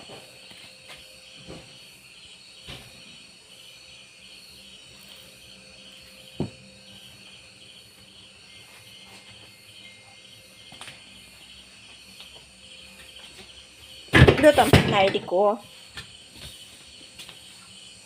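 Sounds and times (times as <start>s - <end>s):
insects chirping trill: 0.0s - 18.0s.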